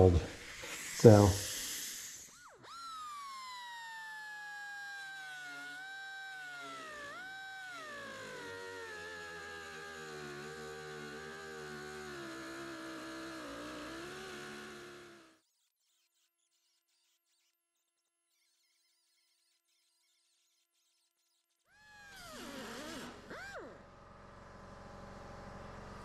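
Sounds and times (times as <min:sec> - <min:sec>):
pneumatic cut-off tool cutting steel: 0:00.0 - 0:15.4, 0:21.8 - 0:24.0.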